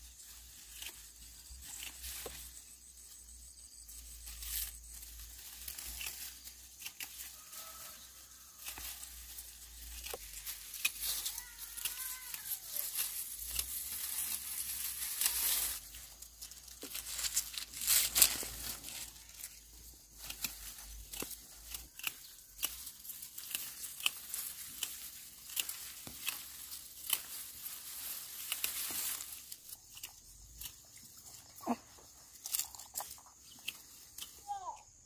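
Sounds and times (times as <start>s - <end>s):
rustling and crinkling: 0.0s - 34.4s.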